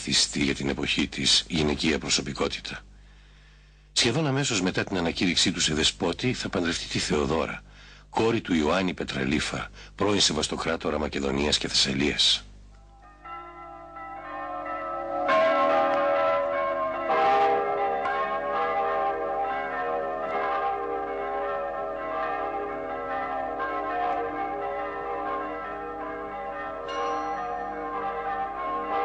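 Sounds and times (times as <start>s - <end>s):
church bells ringing: 12.8s - 29.0s.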